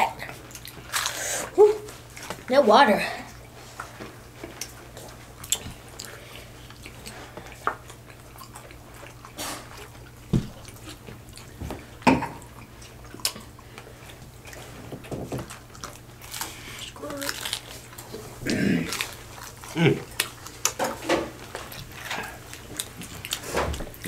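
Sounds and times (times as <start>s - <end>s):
low steady hum: 0.0s - 24.0s
taco shells crunching: 0.5s - 1.2s, 15.5s - 20.8s.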